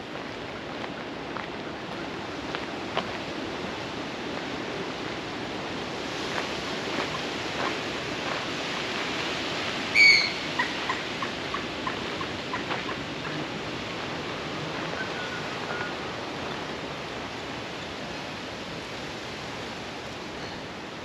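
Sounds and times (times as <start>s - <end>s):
bird calling: 9.9s - 13.5s.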